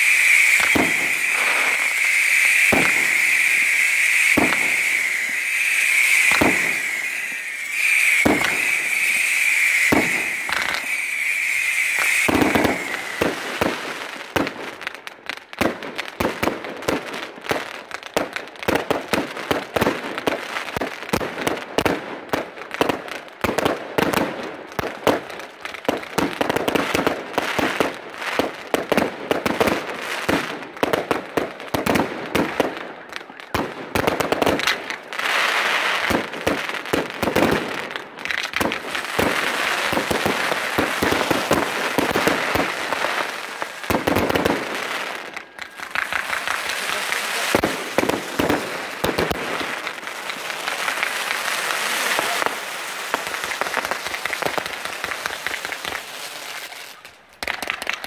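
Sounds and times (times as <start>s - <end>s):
fireworks launch thuds: 0.0s - 14.6s
high firework whistle: 0.0s - 14.9s, 31.7s - 55.9s
fireworks bangs with crackle: 0.0s - 58.0s.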